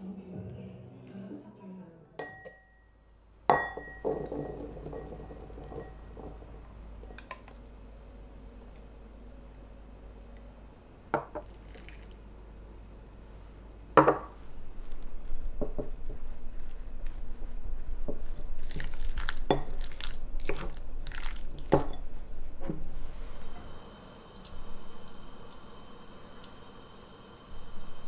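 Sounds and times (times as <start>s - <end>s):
spoon knocking against bowl: 3.5s - 6.4s
wet stirring of batter: 14.8s - 22.2s.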